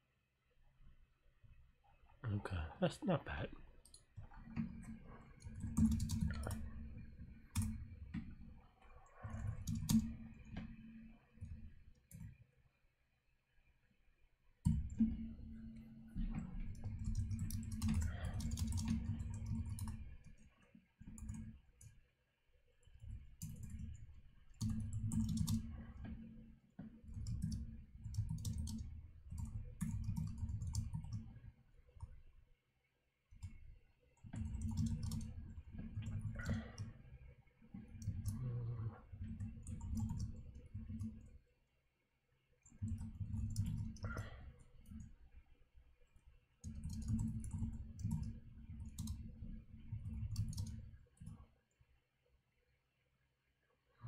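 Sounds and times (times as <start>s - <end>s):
typing on computer keyboard: 4.6s - 8.3s, 9.2s - 10.7s, 16.4s - 20.4s, 21.1s - 21.9s, 23.0s - 24.0s, 24.6s - 26.3s, 27.1s - 31.4s, 34.3s - 36.9s, 38.0s - 38.4s, 39.2s - 41.3s, 42.7s - 45.1s, 46.6s - 51.3s.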